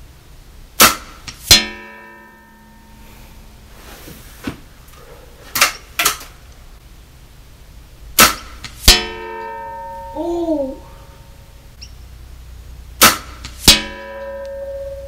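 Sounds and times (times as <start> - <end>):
sharp knocks: 0.8 - 2.3, 8.2 - 9.9, 13.0 - 14.6
steel target plate clanging: 0.8 - 3.0, 8.2 - 10.2, 13.0 - 15.0
air rifle firing: 13.0 - 13.8.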